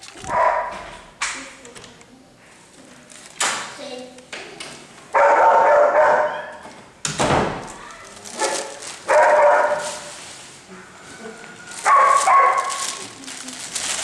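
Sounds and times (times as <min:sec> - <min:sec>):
dog barking: 0:00.3 - 0:00.9, 0:05.2 - 0:06.6, 0:08.4 - 0:10.1, 0:11.8 - 0:13.0
loud thud: 0:07.2 - 0:07.7.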